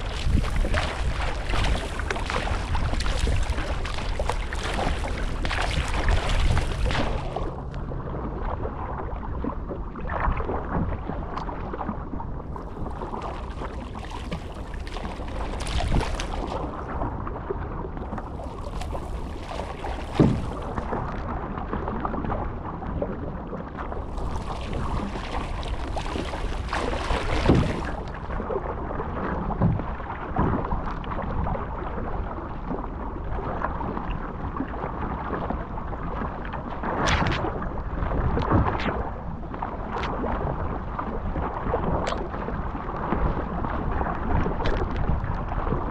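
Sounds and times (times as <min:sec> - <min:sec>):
paddle blades splashing: 0:00.0 - 0:21.6, 0:23.7 - 0:31.0
water slapping along hull: 0:00.0 - 0:45.9.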